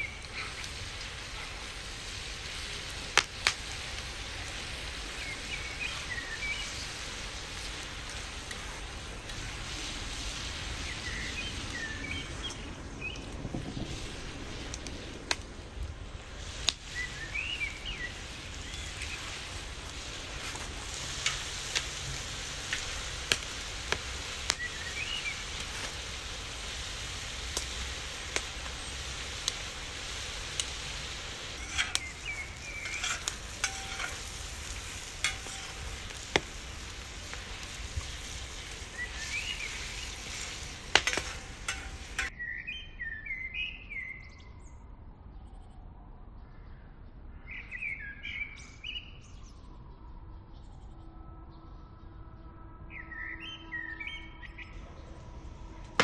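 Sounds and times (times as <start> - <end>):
food sizzling on a hot griddle: 0.0 - 15.3, 16.1 - 42.3
songbirds chirping: 0.0 - 56.0.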